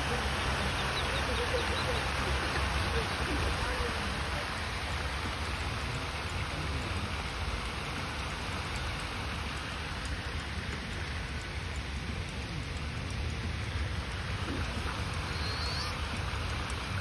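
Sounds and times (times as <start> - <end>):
fountain spray splashing: 0.0 - 17.0.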